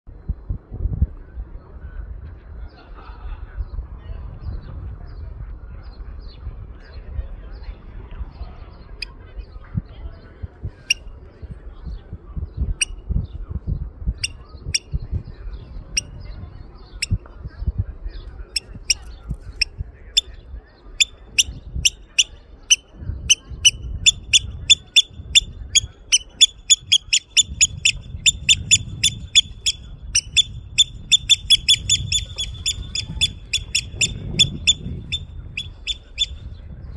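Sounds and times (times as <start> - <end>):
oystercatcher alarm calls: 21.0 - 36.4.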